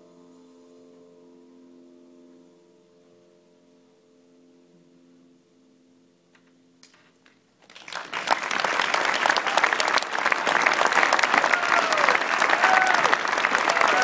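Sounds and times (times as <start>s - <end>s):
audience applause: 7.6s - 14.0s.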